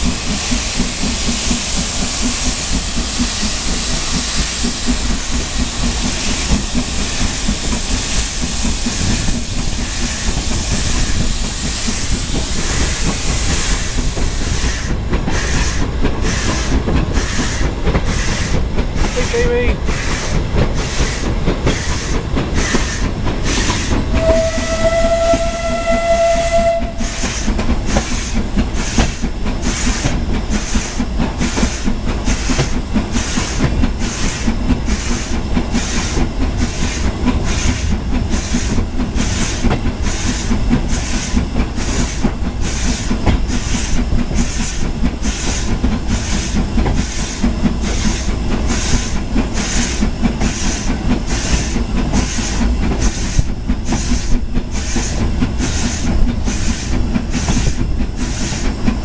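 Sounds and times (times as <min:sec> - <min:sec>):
steam locomotive chuffing: 0:00.0 - 0:59.0
train wheels rumbling on track: 0:00.0 - 0:59.0
steam whistle: 0:24.1 - 0:27.4.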